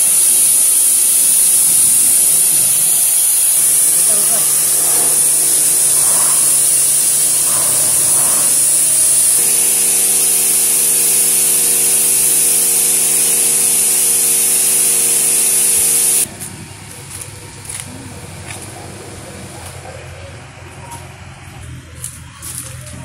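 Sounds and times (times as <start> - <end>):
pressure washer jet hissing: 0.0 - 16.3
washer pump motor hum: 0.0 - 23.0.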